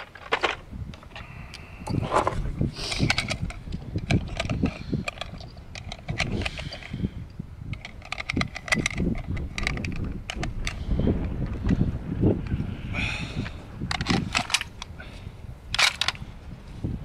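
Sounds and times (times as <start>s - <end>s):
cartridges clicking into magazine: 7.7s - 10.8s, 13.9s - 14.9s, 15.7s - 16.2s.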